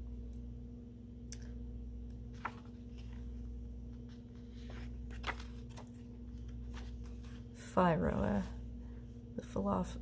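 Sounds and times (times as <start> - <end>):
steady low hum: 0.0 - 10.0
book pages turning: 2.2 - 7.6.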